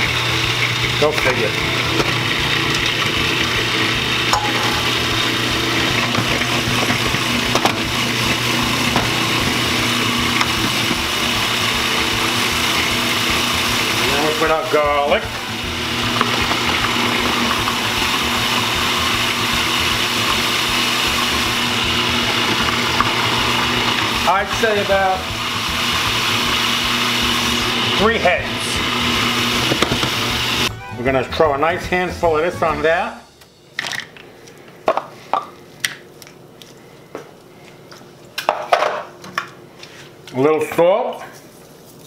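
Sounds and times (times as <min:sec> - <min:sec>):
food processor motor whirring: 0:00.0 - 0:30.7.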